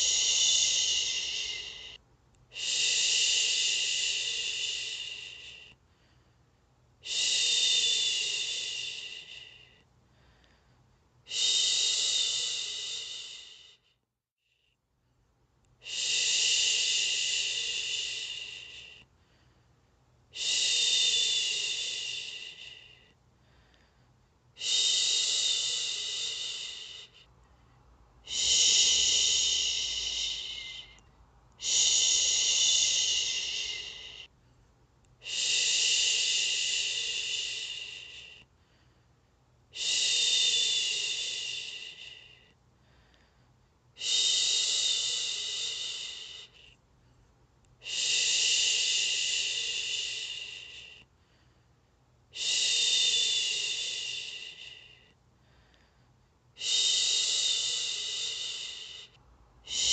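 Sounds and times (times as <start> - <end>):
woman shushing: 0.0 - 5.6, 28.2 - 31.0, 31.6 - 34.3, 59.6 - 59.9.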